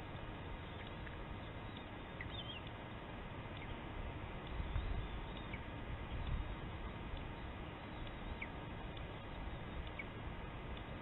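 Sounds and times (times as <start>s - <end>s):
steady hiss: 0.0s - 11.0s
high bird chirps: 0.6s - 2.7s, 7.3s - 8.6s.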